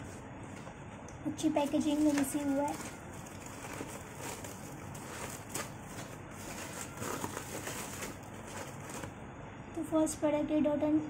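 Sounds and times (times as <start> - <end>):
packing paper rustling: 1.6 - 9.2.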